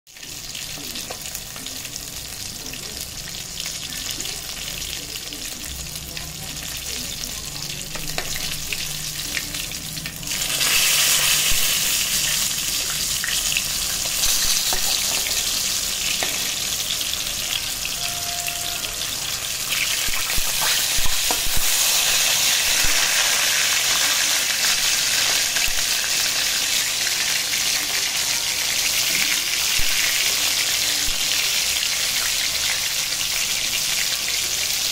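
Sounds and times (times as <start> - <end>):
fish sizzling in hot oil: 0.1 - 34.9.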